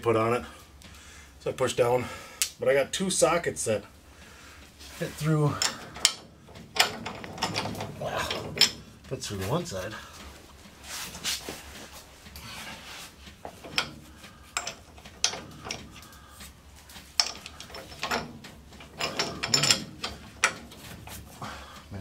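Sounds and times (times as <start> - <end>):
metal tools clinking and scraping: 4.9 - 10.3, 12.4 - 21.5.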